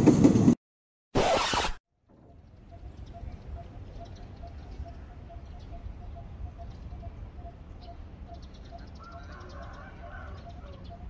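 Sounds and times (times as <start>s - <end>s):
birds chirping: 2.2s - 11.0s.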